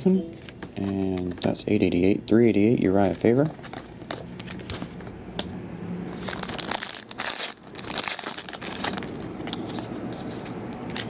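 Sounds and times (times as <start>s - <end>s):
cards rustling and clicking: 3.0s - 5.1s, 6.2s - 11.0s
foil wrapper crinkling: 6.2s - 10.4s.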